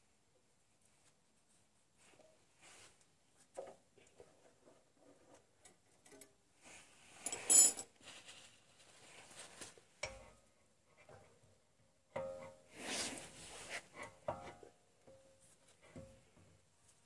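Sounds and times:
small metal clicks and rattles: 5.6 - 6.4.

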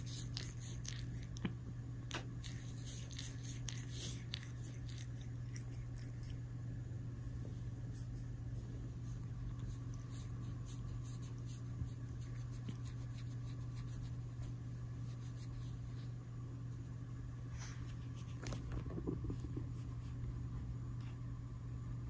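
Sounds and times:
cat tongue licking skin: 0.0 - 6.6, 9.1 - 14.4
steady low hum: 0.0 - 22.0.

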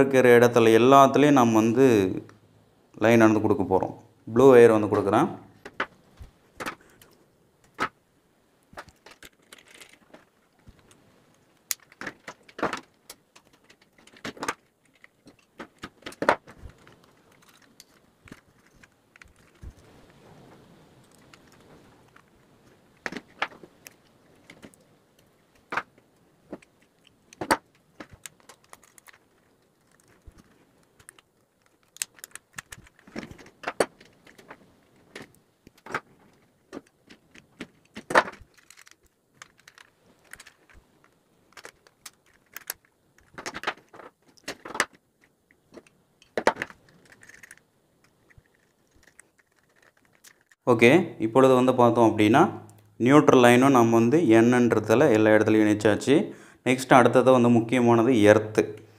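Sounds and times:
wire being handled: 8.6 - 50.7.

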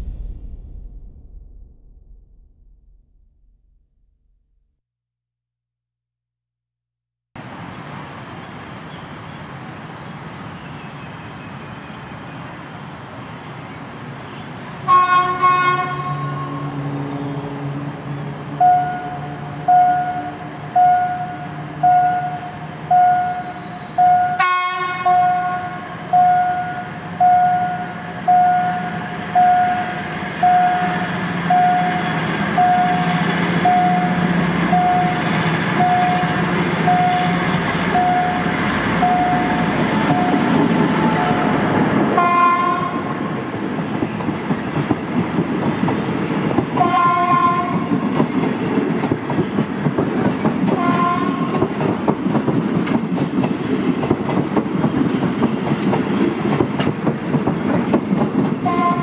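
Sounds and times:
train rumble: 0.0 - 3.7, 14.7 - 59.0
locomotive horn blasts: 14.8 - 16.6, 24.2 - 25.8, 37.0 - 43.2, 46.8 - 47.9, 50.8 - 51.6, 58.6 - 59.0.

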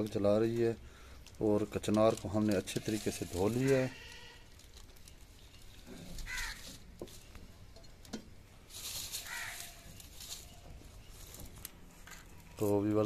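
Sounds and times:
faint clicks of dry twigs: 0.0 - 13.0
crow cawing: 6.2 - 6.7, 9.2 - 9.9.

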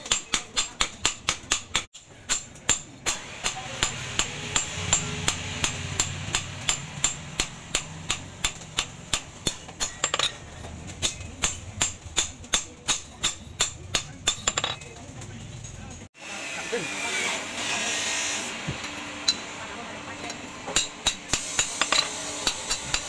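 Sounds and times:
hammer striking metal blade: 0.0 - 14.8, 20.7 - 23.0.

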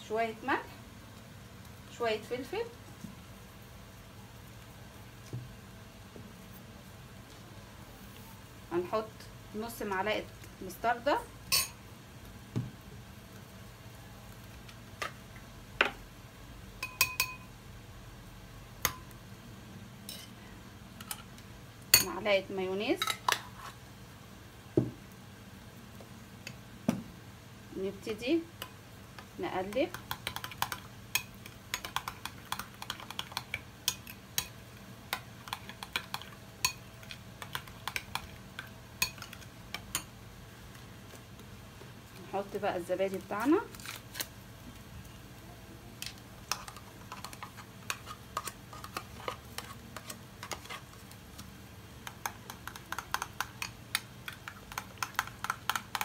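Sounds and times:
metal spoon clinking in glass bowl: 11.5 - 11.8, 16.8 - 17.5.

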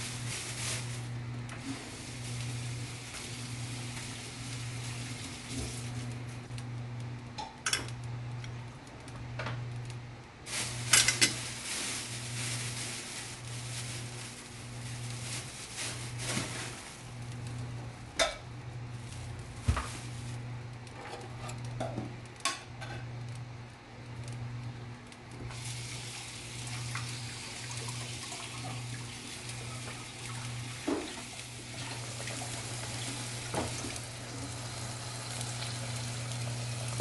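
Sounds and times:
pastry sheets rustling: 0.0 - 2.6, 10.5 - 17.3, 19.0 - 20.4.

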